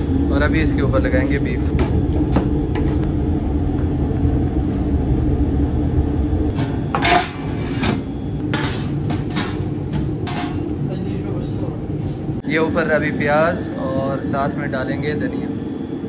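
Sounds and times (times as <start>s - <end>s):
low hum of kitchen equipment: 0.0s - 16.0s
metal lids clattering: 6.9s - 10.7s.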